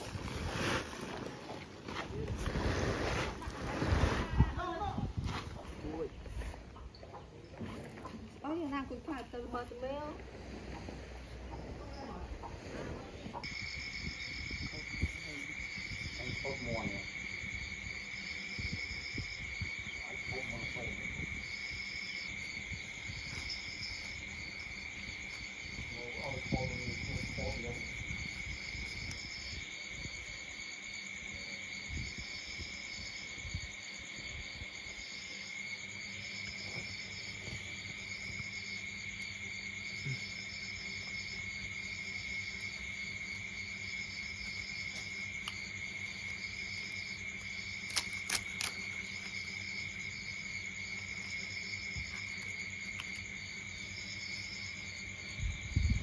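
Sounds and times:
crickets trilling: 0:00.0 - 0:56.0
pulsing insect chirp: 0:00.0 - 0:56.0.

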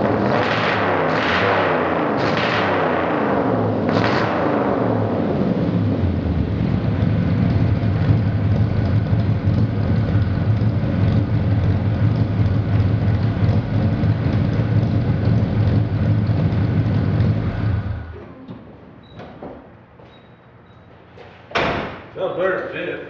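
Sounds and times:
truck engine idling: 0:05.8 - 0:18.3.

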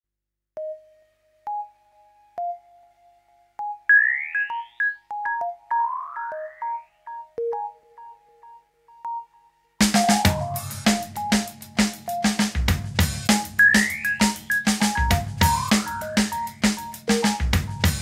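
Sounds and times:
single synthesizer notes: 0:13.3 - 0:17.4
rising pitch sweeps: 0:15.4 - 0:16.5.

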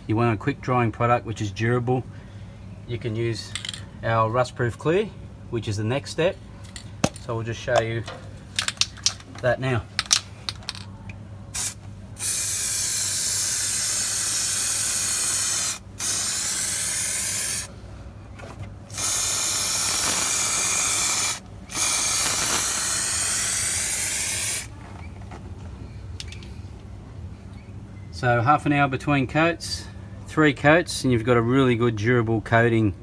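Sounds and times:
aerosol can spraying: 0:11.6 - 0:17.7, 0:18.9 - 0:24.7.

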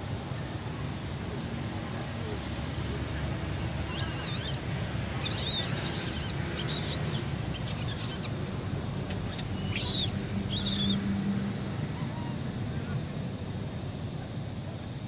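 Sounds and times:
baby monkey squeaking: 0:03.8 - 0:04.6, 0:05.2 - 0:08.4, 0:09.2 - 0:11.1.

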